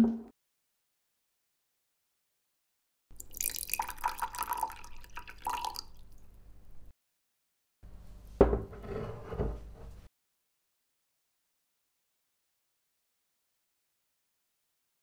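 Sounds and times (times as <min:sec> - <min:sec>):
liquid trickling and dripping: 0:03.1 - 0:06.8.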